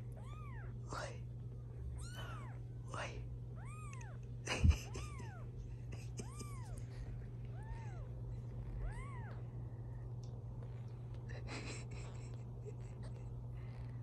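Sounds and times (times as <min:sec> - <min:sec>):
kittens mewing: 0:00.0 - 0:00.8, 0:01.9 - 0:02.7, 0:03.6 - 0:09.5.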